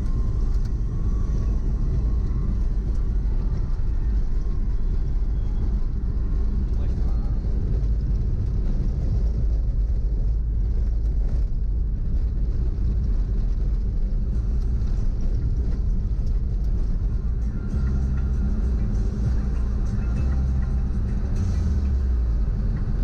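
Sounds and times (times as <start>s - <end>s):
car engine and road noise: 0.0s - 23.0s
music playing: 14.4s - 23.0s.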